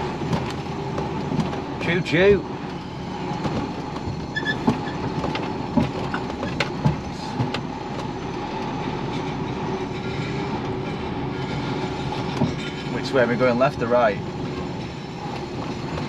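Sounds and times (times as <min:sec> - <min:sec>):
diesel engine running: 0:00.0 - 0:16.0.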